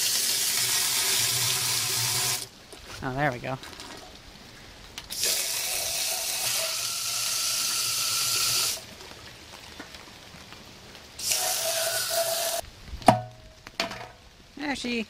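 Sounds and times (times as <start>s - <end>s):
hose water spraying into metal tank: 0.0s - 2.5s, 5.1s - 8.8s, 11.2s - 12.6s.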